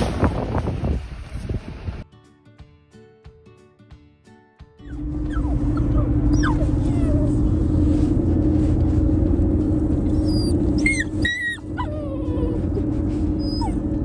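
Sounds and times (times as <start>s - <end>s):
puppy whimpering and yelping: 4.8s - 7.7s, 10.1s - 14.0s
steady low rumble: 4.9s - 14.0s.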